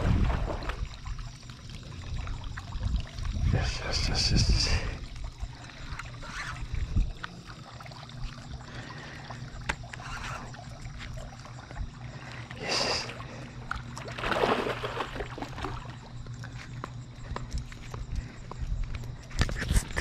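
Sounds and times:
fish splashing in water: 0.0 - 16.5.

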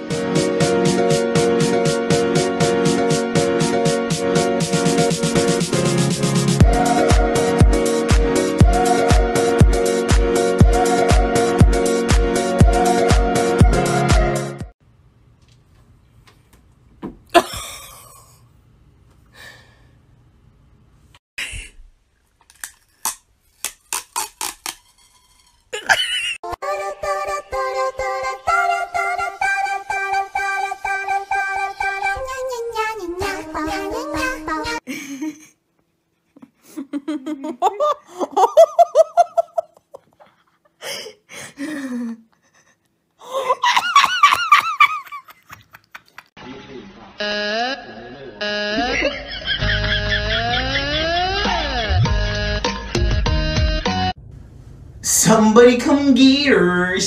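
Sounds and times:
woman giggling: 17.3 - 18.4, 25.8 - 26.4, 34.9 - 35.6, 36.3 - 46.3, 48.7 - 51.9
woman gasping: 19.3 - 19.9, 40.8 - 43.6.

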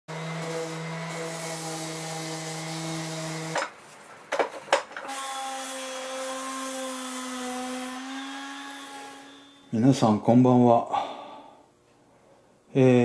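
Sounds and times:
orbital sander on wood: 0.1 - 3.6, 5.1 - 9.6.

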